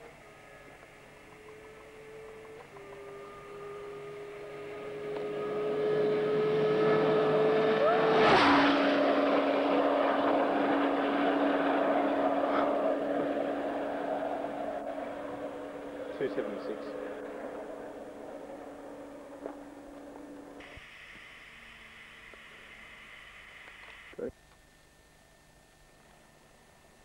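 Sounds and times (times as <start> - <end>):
motorcycle engine passing at speed: 0.5 - 20.8.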